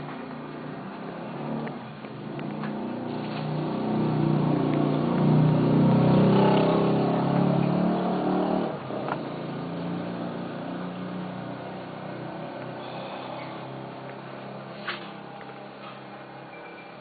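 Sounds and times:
engine running: 0.0 - 16.5.

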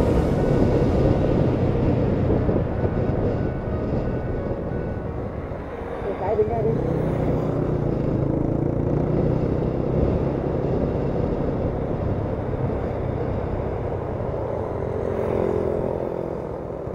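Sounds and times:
motorcycle engine running: 6.4 - 16.9.

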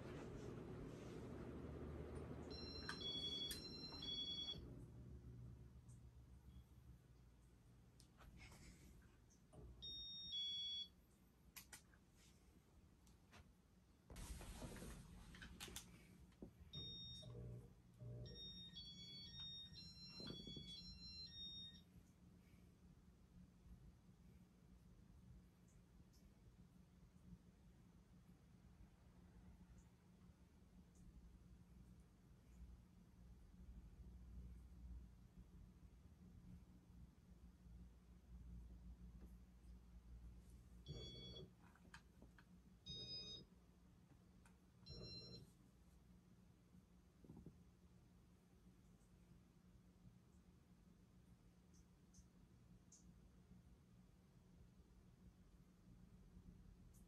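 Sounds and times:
faint low hum: 0.0 - 57.0
faint electronic beeps: 2.4 - 4.7, 40.9 - 41.5, 42.9 - 43.5, 44.9 - 45.5.

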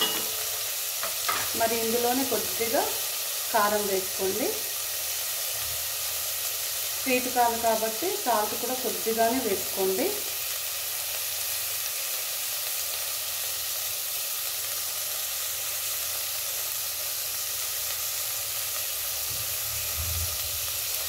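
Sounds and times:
vegetables sizzling in hot oil: 0.0 - 21.0.

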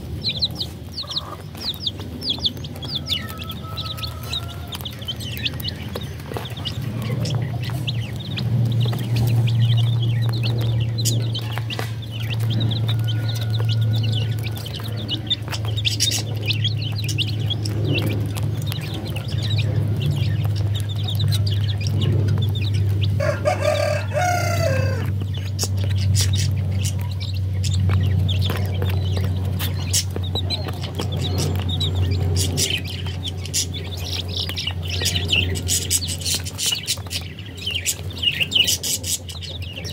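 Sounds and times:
chickens clucking: 0.0 - 39.9
chicks peeping: 0.0 - 39.9
steady low hum: 0.0 - 39.9
adult chicken long low call: 0.1 - 25.3.

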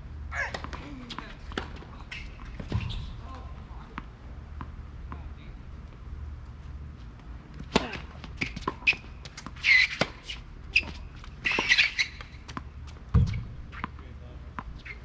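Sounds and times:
tennis ball bouncing: 0.4 - 3.1, 7.6 - 14.9.

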